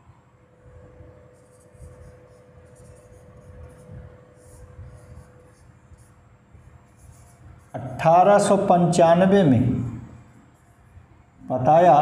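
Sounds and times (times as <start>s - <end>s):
faint steady hum: 0.0s - 12.0s
marker pen scratching on whiteboard: 1.1s - 8.6s.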